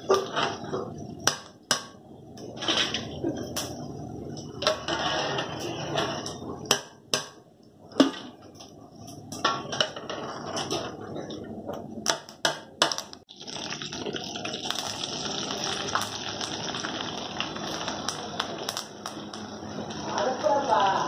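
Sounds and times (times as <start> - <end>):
hot oil sizzling: 12.1 - 21.0.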